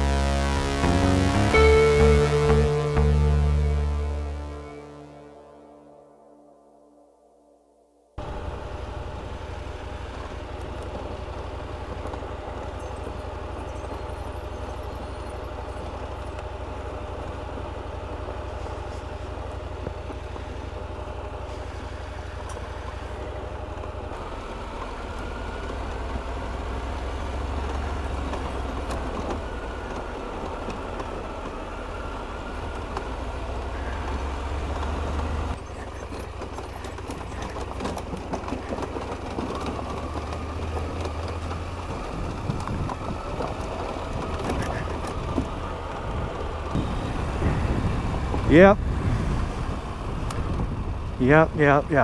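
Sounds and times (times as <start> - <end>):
motorcycle engine running: 0.0 - 6.0, 8.2 - 52.0
tyres on gravel and stones: 34.8 - 47.4.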